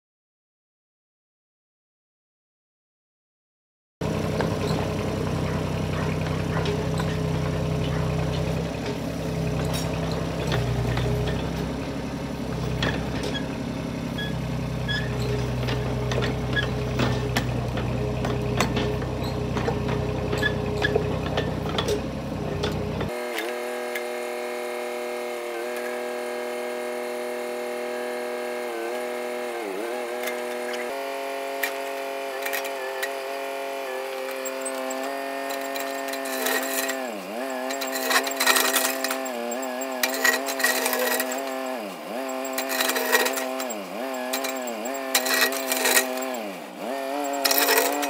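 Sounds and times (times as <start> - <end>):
diesel engine running: 4.0 - 48.0
rubber tracks clanking and rattling: 4.2 - 23.2, 34.2 - 46.5, 47.2 - 48.0.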